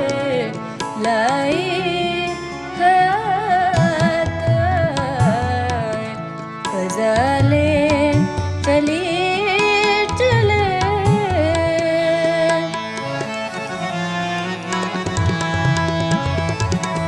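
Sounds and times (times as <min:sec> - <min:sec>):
instrumental backing: 0:00.0 - 0:17.0
melodic vocal line with ornaments: 0:00.0 - 0:17.0
tabla strokes: 0:03.7 - 0:17.0.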